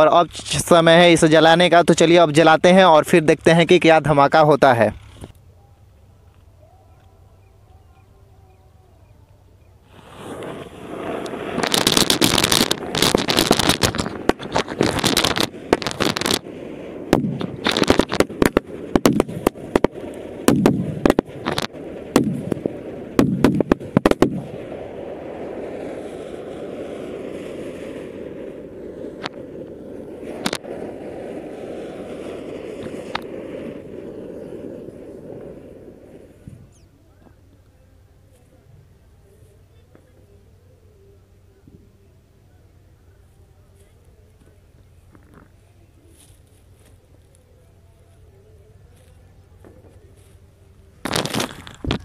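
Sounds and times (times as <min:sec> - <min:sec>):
burning hiss: 0:09.3 - 0:52.0
firecrackers banging: 0:09.8 - 0:37.4, 0:43.8 - 0:52.0
firework fuse hissing: 0:09.8 - 0:37.4, 0:43.2 - 0:52.0.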